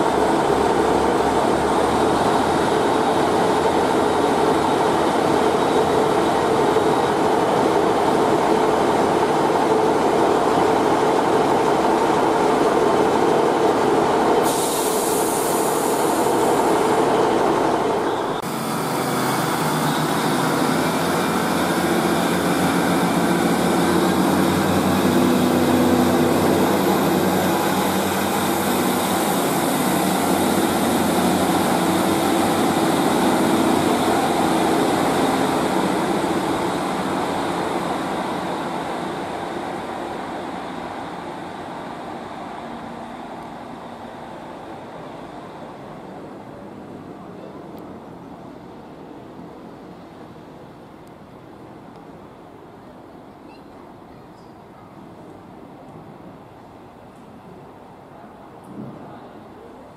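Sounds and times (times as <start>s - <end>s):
train diesel engines droning: 0.0s - 59.9s.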